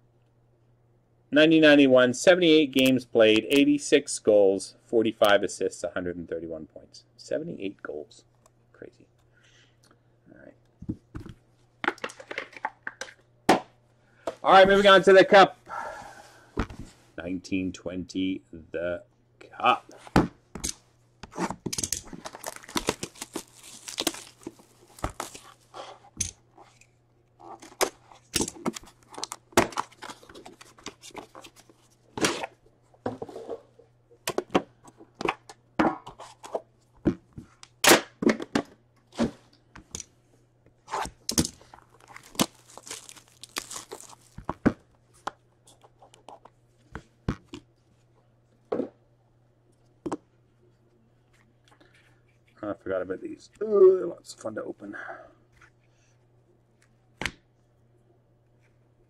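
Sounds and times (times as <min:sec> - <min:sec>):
faint steady hum: 0:00.0 - 0:59.0
plastic wrap tearing and crinkling: 0:22.0 - 0:25.7, 0:41.6 - 0:44.5.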